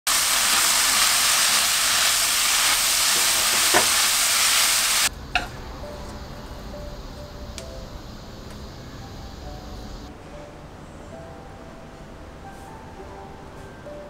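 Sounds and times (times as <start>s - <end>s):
stems sizzling in hot oil: 0.1s - 5.5s.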